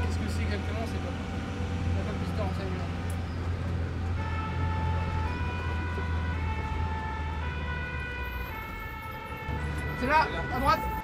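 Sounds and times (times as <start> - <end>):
two-tone fire engine siren: 3.8 - 11.0.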